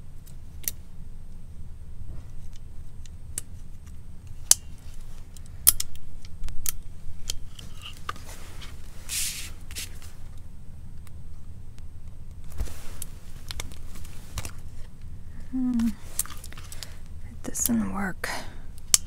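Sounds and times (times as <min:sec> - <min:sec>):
short hiss: 0:09.0 - 0:10.1.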